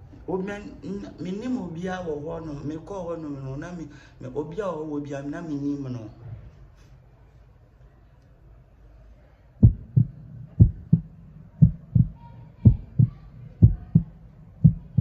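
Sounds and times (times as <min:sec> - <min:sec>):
heartbeat thumps: 0:09.6 - 0:15.0.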